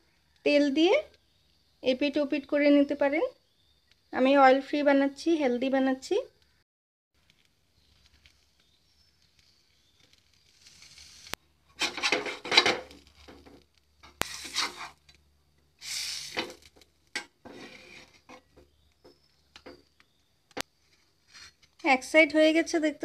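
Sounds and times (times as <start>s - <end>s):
metal spatula scraping hot pan: 10.3s - 15.2s, 15.8s - 18.8s.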